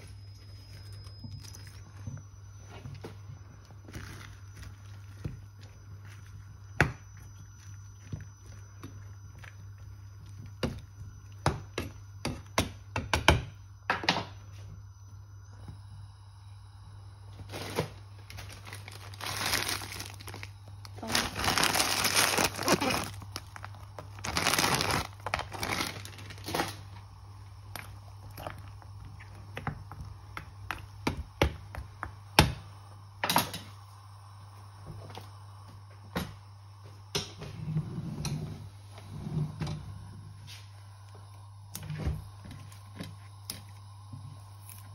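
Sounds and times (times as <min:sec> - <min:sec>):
plastic bag crinkling: 0:17.5 - 0:27.0.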